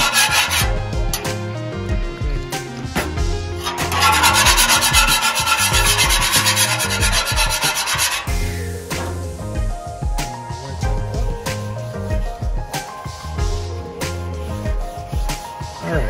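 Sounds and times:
metal scraper scraping griddle: 0.0 - 1.4, 3.0 - 9.3
background music with steady beat: 0.0 - 16.0.

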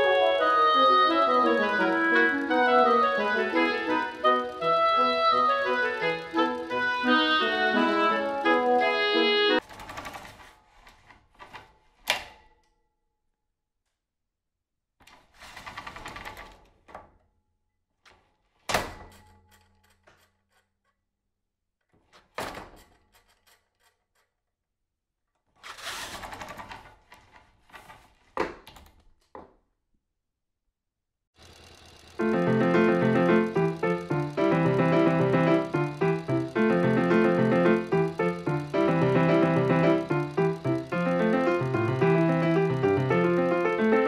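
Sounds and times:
clatter bursts: 31.4 - 44.0.

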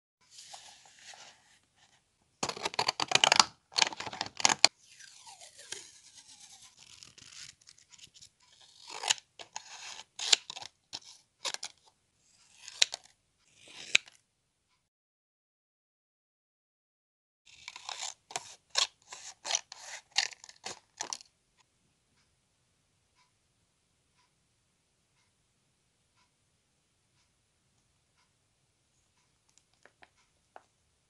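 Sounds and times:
pages leafed through: 0.3 - 11.8
scissors snipping paper: 2.4 - 14.2, 17.5 - 21.2.

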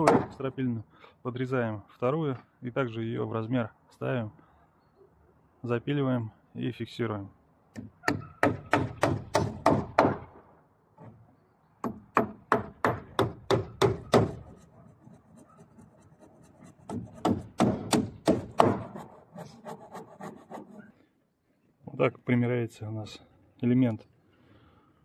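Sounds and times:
hammer driving nails into wood: 7.7 - 10.2, 11.8 - 14.4, 16.9 - 19.0.

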